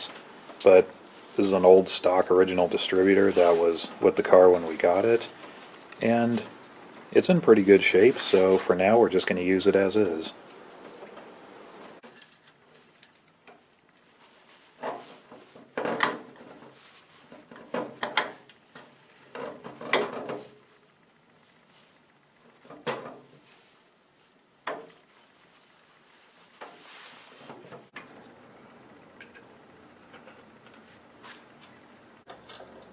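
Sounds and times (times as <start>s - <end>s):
metal parts clunking and clicking: 12.0s - 13.4s, 32.3s - 32.9s.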